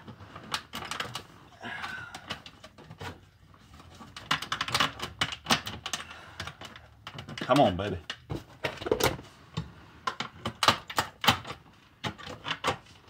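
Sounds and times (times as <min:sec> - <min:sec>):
plastic clicks and rattles: 0:00.0 - 0:09.2, 0:10.0 - 0:13.0.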